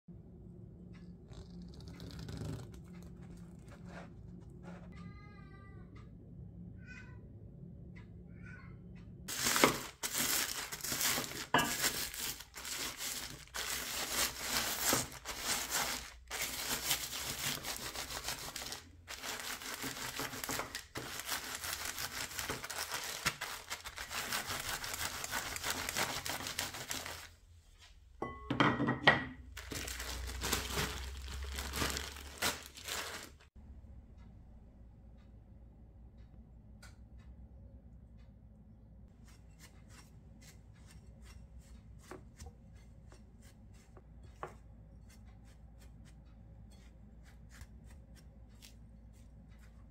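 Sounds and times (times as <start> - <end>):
plastic bag crinkling and crunching: 9.3 - 27.4, 29.5 - 33.5.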